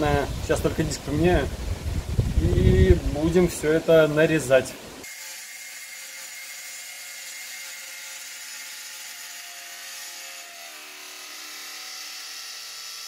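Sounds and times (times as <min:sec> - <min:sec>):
circular saw cutting plywood: 0:05.0 - 0:13.0.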